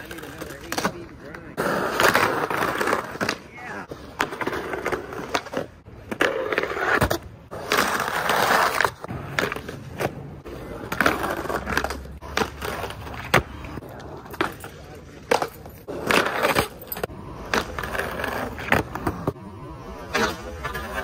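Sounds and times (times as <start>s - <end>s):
skateboard trucks grinding: 0.0s - 21.0s
skateboard wheels rolling on concrete: 0.0s - 21.0s
skateboards clacking: 0.0s - 21.0s.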